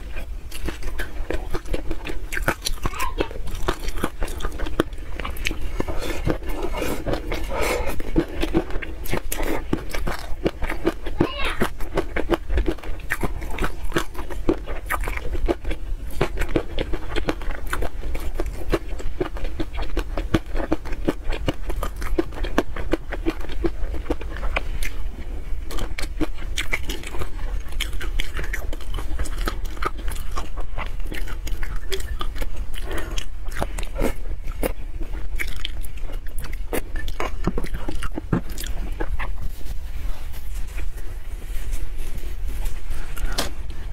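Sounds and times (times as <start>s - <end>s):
chewing and wet mouth sounds: 0.0s - 43.9s.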